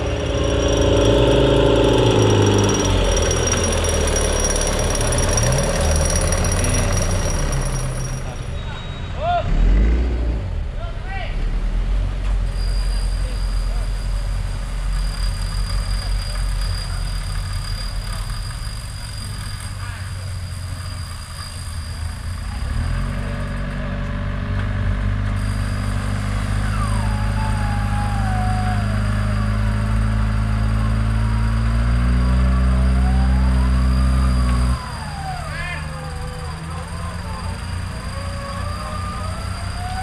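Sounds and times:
faint gliding tone: 0.0s - 9.0s
off-road vehicle engine running: 0.0s - 40.0s.

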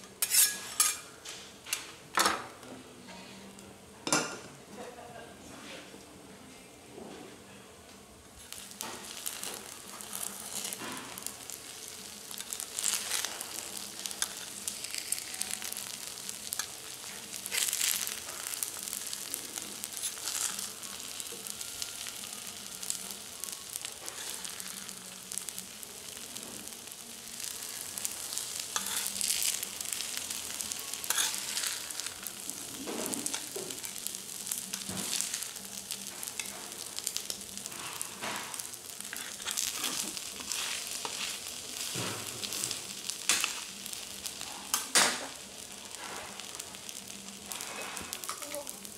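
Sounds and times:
rice sizzling on a griddle: 0.0s - 1.7s, 8.3s - 48.9s
metal spatula scraping: 0.2s - 1.1s, 8.4s - 23.0s, 23.8s - 25.4s, 27.5s - 36.6s, 37.2s - 44.8s, 47.4s - 48.6s.

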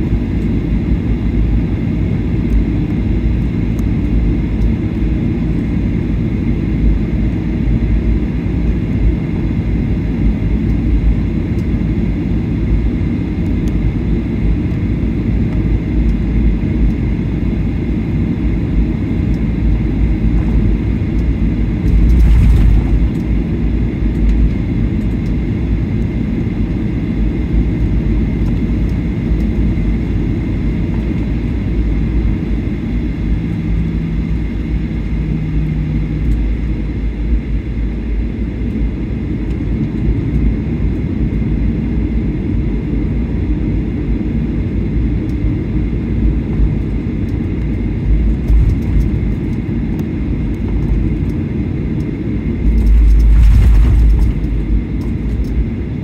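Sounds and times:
airplane cabin engine rumble: 0.0s - 56.0s.

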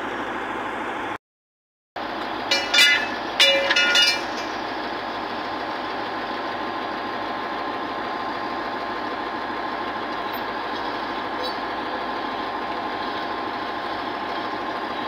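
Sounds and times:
diesel machinery running: 0.0s - 1.2s, 2.0s - 15.0s.

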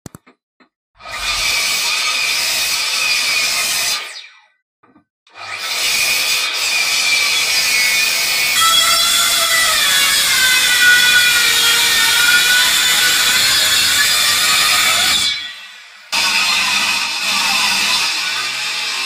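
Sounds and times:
miter saw cutting: 1.0s - 4.3s, 5.3s - 19.0s
circular saw ripping wood: 5.4s - 19.0s.

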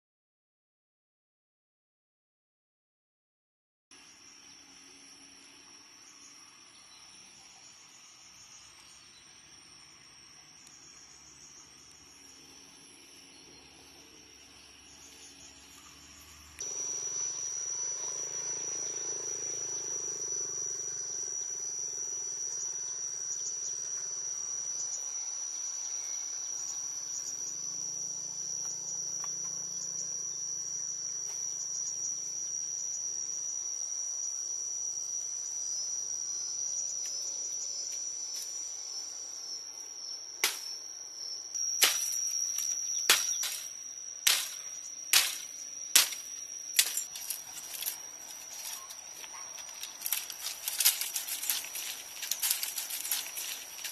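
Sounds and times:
insects buzzing: 3.9s - 53.9s
knife chopping bamboo: 40.4s - 40.7s, 41.8s - 48.0s.

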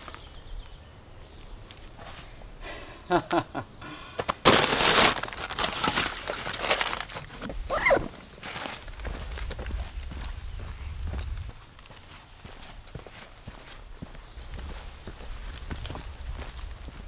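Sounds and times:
bag rustling and crinkling: 4.4s - 9.7s.

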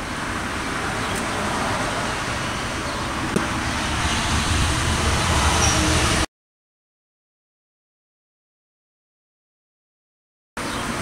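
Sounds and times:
outdoor background rumble: 0.0s - 6.3s
deep hum: 2.6s - 6.3s.

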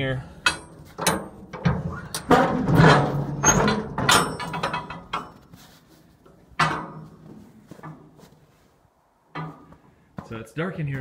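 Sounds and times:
metal container door clanking: 0.5s - 5.4s, 6.6s - 7.1s.

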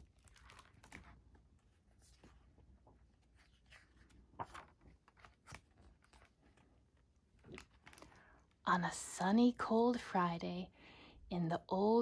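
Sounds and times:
book pages rustling: 0.0s - 8.2s.

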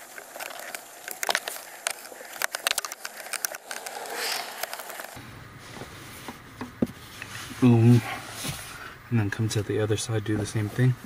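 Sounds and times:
screwdriver clicks and rattles: 0.0s - 5.2s
short scrape: 3.6s - 6.4s.

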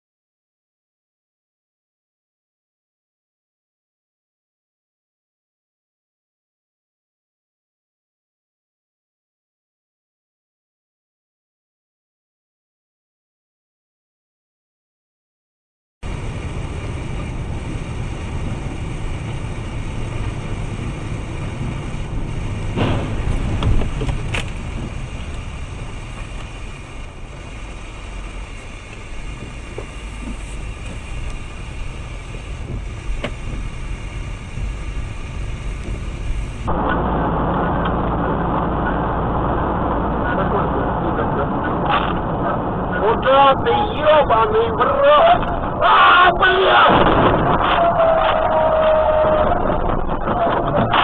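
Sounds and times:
muffled road noise: 16.0s - 51.0s
vehicle engine and road noise: 16.0s - 51.0s.

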